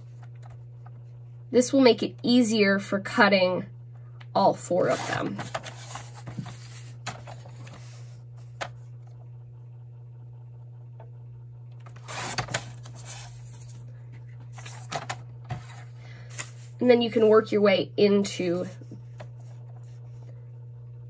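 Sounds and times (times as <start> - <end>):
steady low hum: 0.0 - 21.0
paper sliding: 4.8 - 8.6, 11.8 - 13.8, 14.5 - 16.8
paper trimmer rasping stroke: 11.9 - 13.8.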